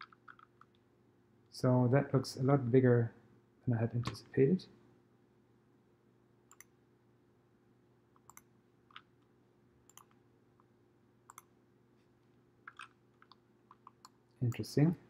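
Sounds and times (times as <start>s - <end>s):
faint steady hum: 0.0s - 15.0s
faint computer mouse clicks: 6.5s - 6.7s, 8.2s - 9.1s, 9.9s - 10.2s, 11.3s - 11.5s.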